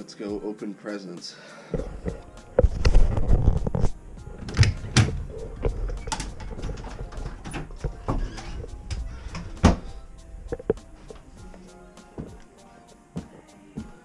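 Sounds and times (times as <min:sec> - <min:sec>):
faint background music: 0:00.0 - 0:14.0
footsteps on carpeted stairs: 0:04.3 - 0:12.5
door being handled: 0:04.4 - 0:10.0.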